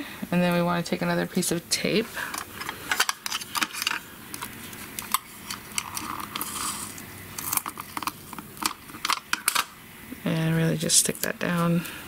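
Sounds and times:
clicks and crinkles of tape: 2.4s - 9.7s.

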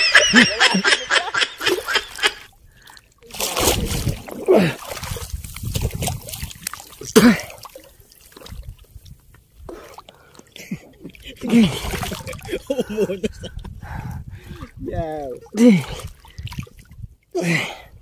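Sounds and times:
man laughing: 0.0s - 2.4s, 10.7s - 13.7s
water splashing around wading person: 1.6s - 12.7s, 14.4s - 17.1s.

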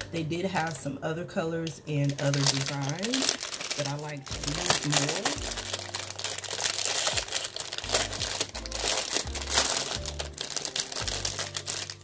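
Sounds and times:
packaging rustling: 2.0s - 12.0s
background music with bass line: 4.2s - 12.0s.

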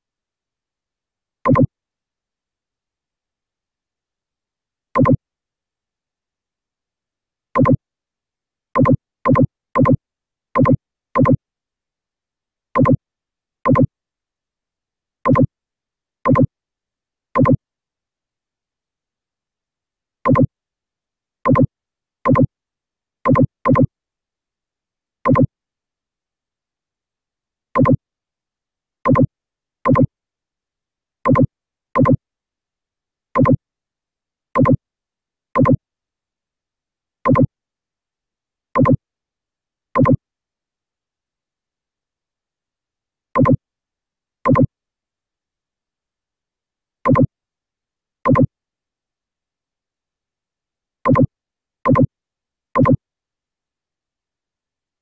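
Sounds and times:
short electronic blips: 5.0s - 5.2s.

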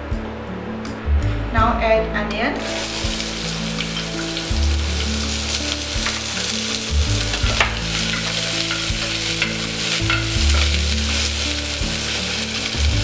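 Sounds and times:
onion sizzling in hot fat: 2.6s - 13.0s.

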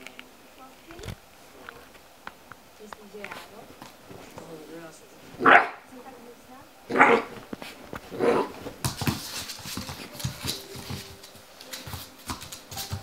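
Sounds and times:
puppy barking: 5.4s - 5.9s, 6.9s - 7.4s, 8.2s - 8.6s
paws thudding on wooden floor: 7.2s - 13.0s.

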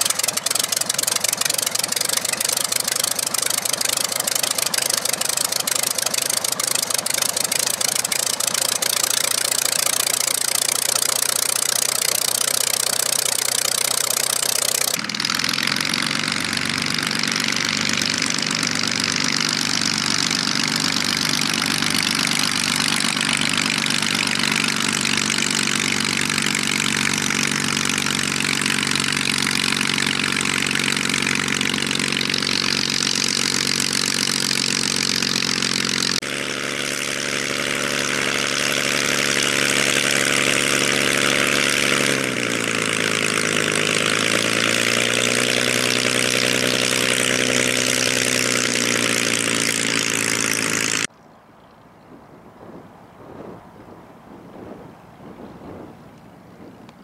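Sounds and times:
aircraft engine running: 0.0s - 51.1s, 52.2s - 57.0s.

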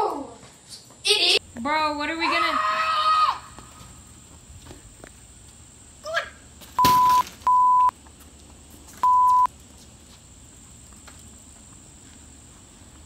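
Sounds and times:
censor bleeps: 6.8s - 7.9s, 9.0s - 9.5s.

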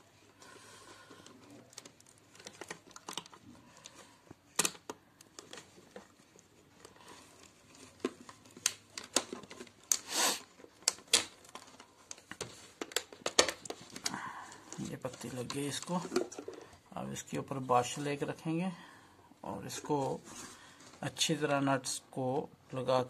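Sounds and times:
plastic container crinkling: 1.3s - 16.8s.

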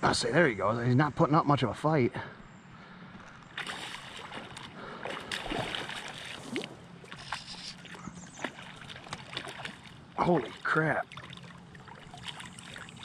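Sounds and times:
fish splashing at water surface: 3.6s - 13.0s.

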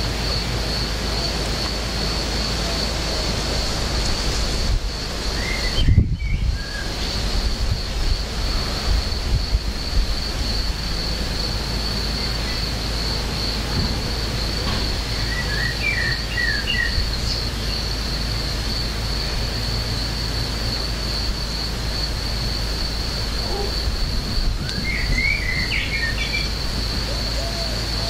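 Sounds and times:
small birds chirping: 14.4s - 18.0s, 23.4s - 28.0s.

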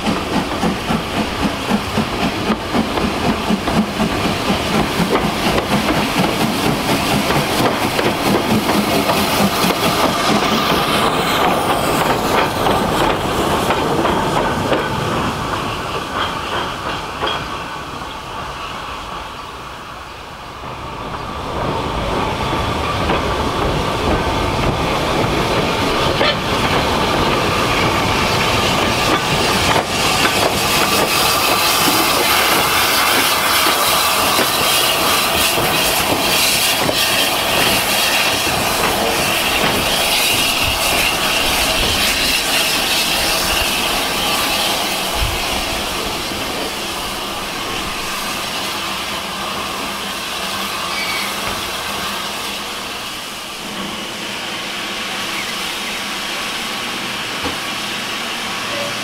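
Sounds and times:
steam hissing: 0.0s - 59.0s
wheel squeal: 50.8s - 51.6s.

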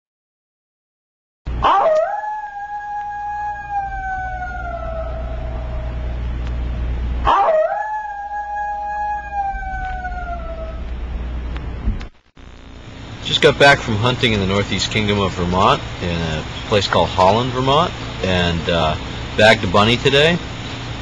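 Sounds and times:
dog howling: 1.5s - 6.2s, 7.2s - 11.0s
steady low rumble: 2.5s - 21.0s.

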